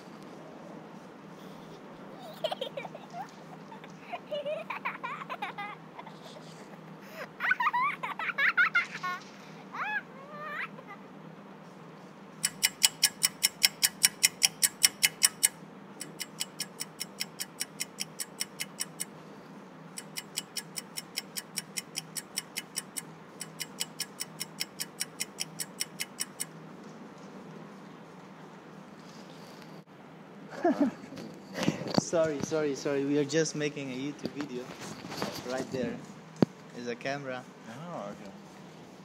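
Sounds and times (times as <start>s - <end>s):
fast even ticking: 12.4s - 19.1s, 20.0s - 26.5s.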